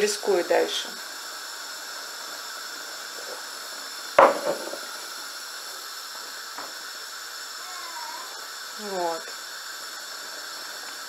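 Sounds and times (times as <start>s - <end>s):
pot boiling with steady hiss: 0.0s - 11.0s
sharp knock of lid: 4.2s - 4.8s.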